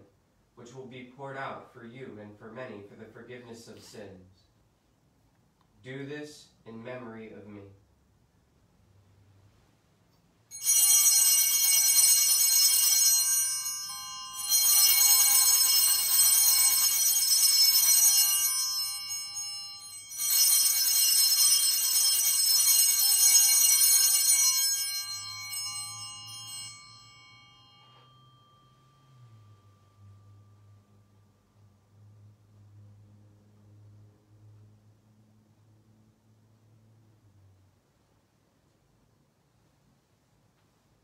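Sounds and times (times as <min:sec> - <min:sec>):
altar bells jingling: 0:10.5 - 0:30.8.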